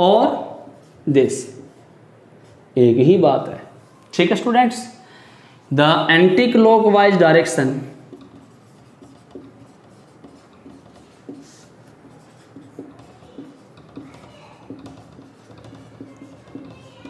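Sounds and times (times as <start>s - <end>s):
marker writing on whiteboard: 6.6s - 17.0s.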